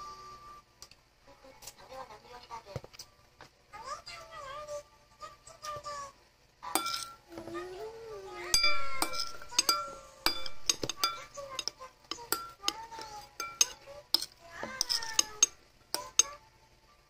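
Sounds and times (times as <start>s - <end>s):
cutlery clinking against bowls: 6.8s - 7.2s, 8.5s - 16.4s.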